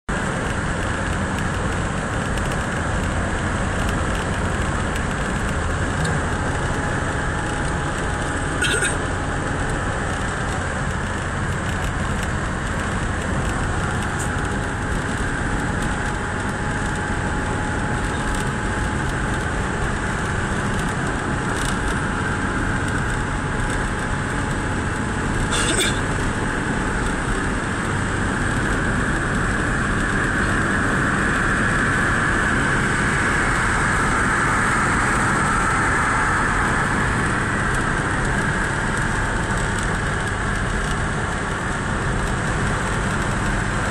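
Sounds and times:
road and engine noise in car: 0.1 - 43.9.

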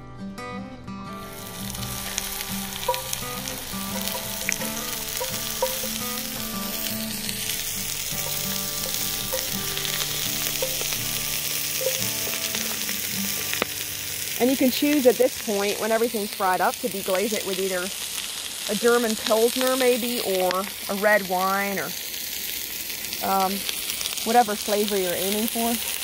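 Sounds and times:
onion frying in oil sizzling: 1.2 - 26.0
utensil clicking on pot: 7.6 - 12.9.

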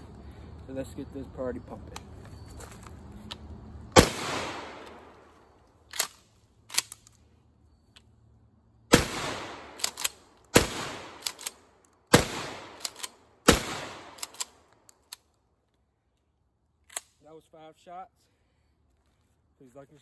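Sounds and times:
shotgun shots echoing: 4.0 - 5.2, 8.9 - 11.5, 12.1 - 14.3.

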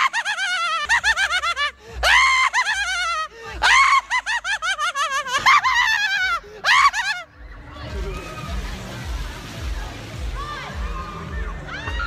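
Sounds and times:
man shrieking laugh: 0.0 - 7.3.

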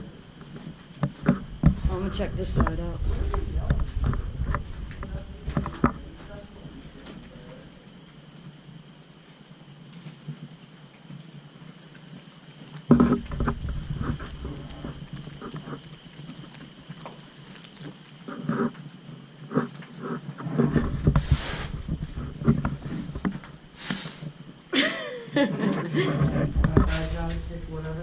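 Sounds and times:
low rumbling on microphone: 0.0 - 8.1, 13.0 - 16.5, 20.6 - 23.9, 26.0 - 28.0
short hissing bursts: 21.2 - 21.9, 23.6 - 24.4.

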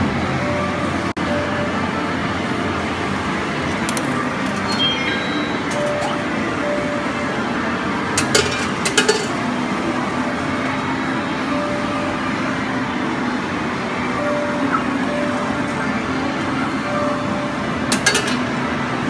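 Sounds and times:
faint game music: 1.2 - 7.8
arcade din: 3.9 - 6.8.

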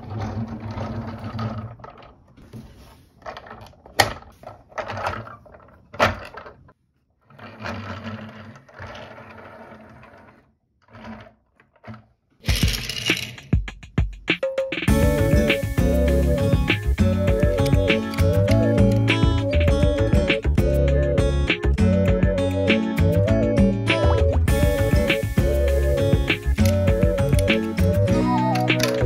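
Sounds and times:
toy truck wheels whirring: 7.2 - 13.5, 14.9 - 20.5, 24.0 - 29.0
toy car clattering on table: 8.4 - 13.6, 28.5 - 29.0.

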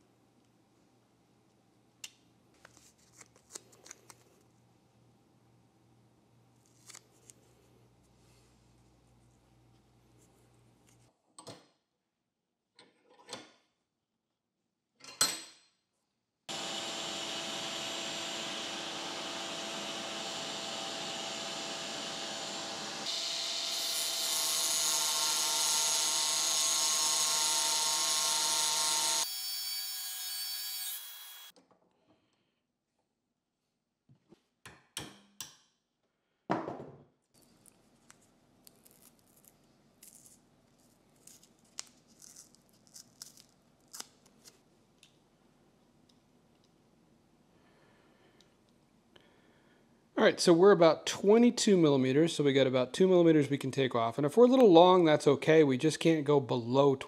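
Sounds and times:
angle grinder cutting steel: 16.5 - 31.5
shop vacuum: 16.5 - 31.5.

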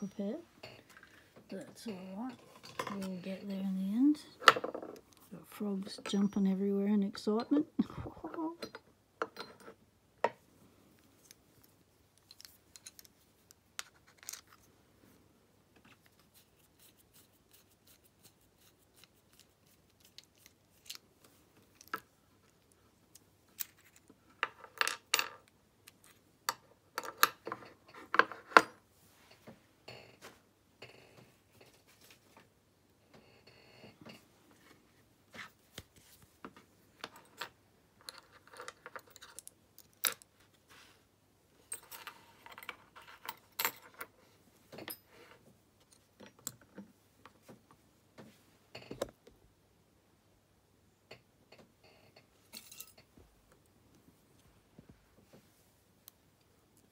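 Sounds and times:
small metal clicks and clinks: 11.2 - 13.6, 37.0 - 40.3.

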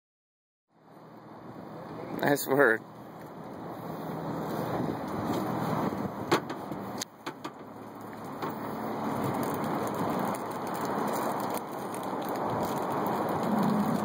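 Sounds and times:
wind rushing over microphone: 3.6 - 7.0, 7.6 - 14.0
sharp clicks and knocks: 6.3 - 8.6.

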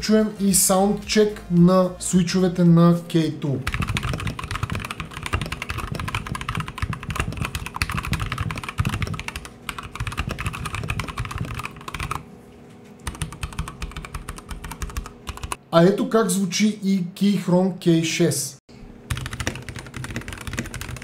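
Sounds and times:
mechanical keyboard typing: 3.7 - 12.2, 13.0 - 15.6, 19.1 - 21.0.

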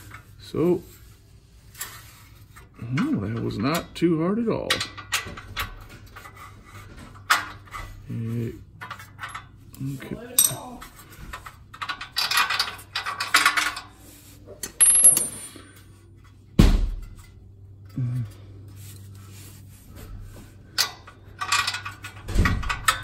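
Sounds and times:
metal clinking and rattling: 10.2 - 14.0, 14.6 - 15.8, 20.7 - 23.0.

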